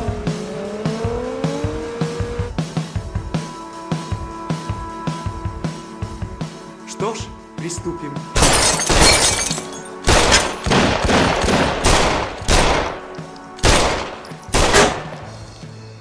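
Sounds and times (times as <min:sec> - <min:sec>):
pistol shots with ringing tail: 0:10.0 - 0:15.5.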